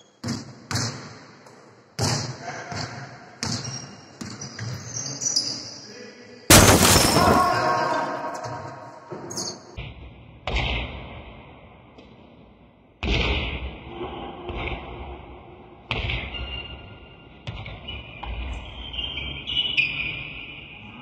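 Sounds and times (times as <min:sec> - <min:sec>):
loud ringing bang: 0:06.5 - 0:08.4.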